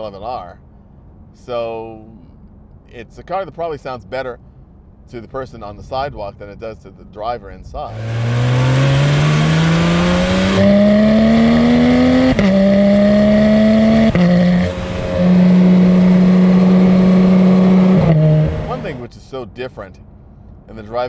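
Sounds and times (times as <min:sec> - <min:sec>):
car engine accelerating: 0:07.9 - 0:19.0.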